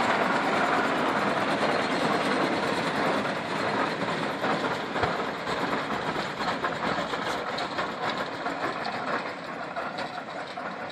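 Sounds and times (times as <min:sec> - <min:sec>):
tractor engine running: 0:00.0 - 0:10.9.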